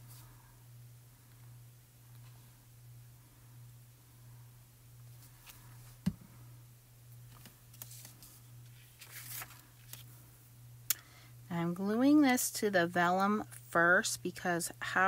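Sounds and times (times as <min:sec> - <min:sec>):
steady low hum: 0:00.0 - 0:15.0
soft paper rustles: 0:07.2 - 0:10.2
cardstock handling sounds: 0:07.3 - 0:10.1.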